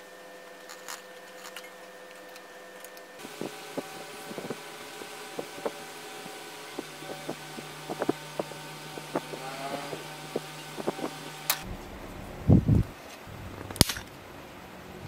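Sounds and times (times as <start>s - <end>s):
low steady hum: 0.0s - 15.0s
steady hiss: 3.2s - 15.0s
sharp click: 13.7s - 14.1s.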